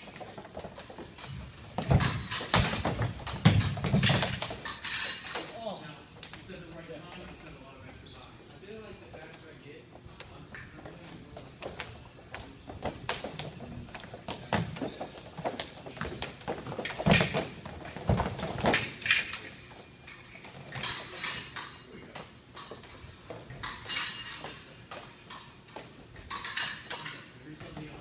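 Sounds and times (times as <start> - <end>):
shoes squeaking: 0.0 - 28.0
steady high beep: 5.5 - 6.1, 7.1 - 9.3, 19.5 - 20.8.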